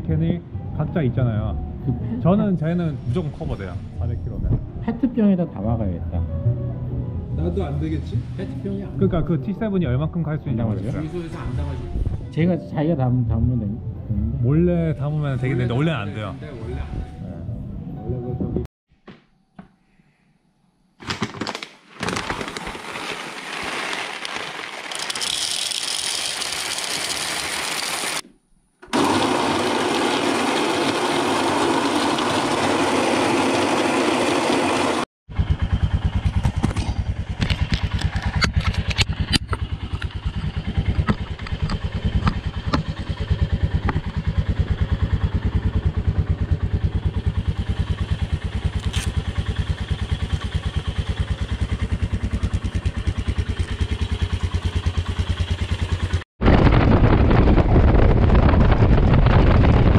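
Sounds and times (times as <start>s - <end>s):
loud steady whirring: 28.9s - 38.1s
motorcycle engine idling: 35.3s - 56.2s.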